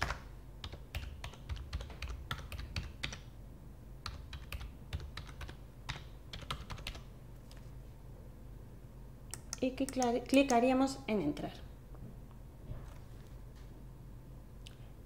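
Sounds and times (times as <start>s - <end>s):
computer keyboard typing: 0.0s - 3.3s, 4.0s - 7.1s, 9.3s - 10.6s.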